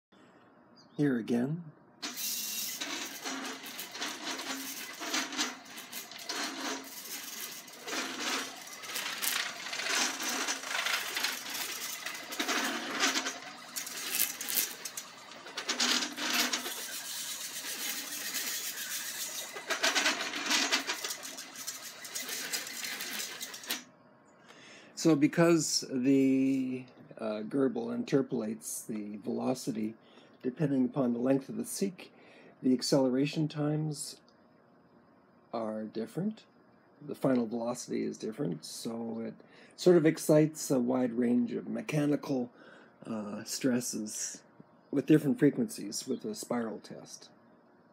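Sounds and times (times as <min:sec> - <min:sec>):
metallic rattle: 0:02.0 - 0:23.8
stepper motors buzzing whine: 0:02.0 - 0:23.8.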